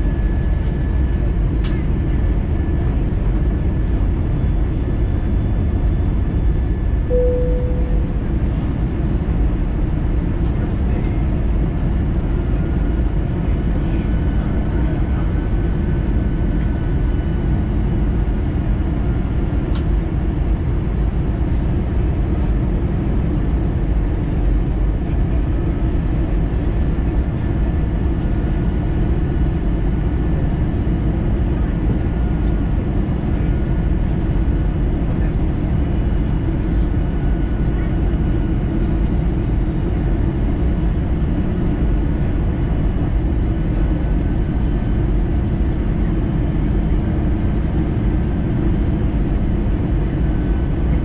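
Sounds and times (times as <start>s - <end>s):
jet engine and airflow rumble: 0.0s - 51.0s
faint steady whine tones: 1.7s - 18.9s.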